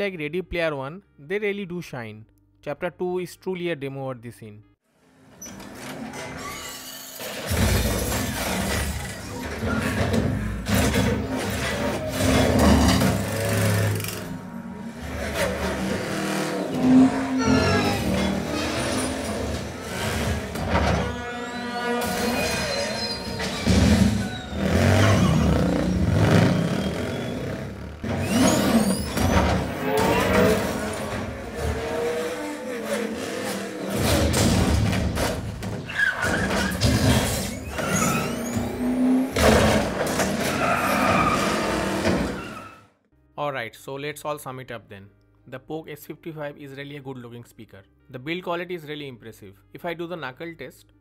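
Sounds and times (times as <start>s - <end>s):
film soundtrack through speakers: 0.0s - 51.0s
car engines revving: 10.5s - 20.6s, 23.4s - 35.0s, 37.8s - 42.6s
heavy bass: 23.6s - 28.6s.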